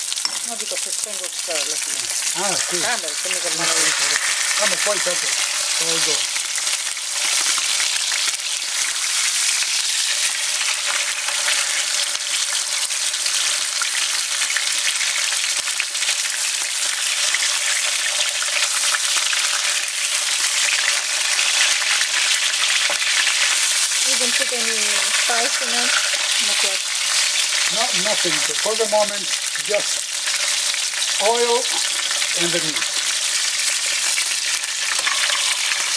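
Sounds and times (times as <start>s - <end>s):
meat sizzling in hot oil: 0.0s - 35.9s.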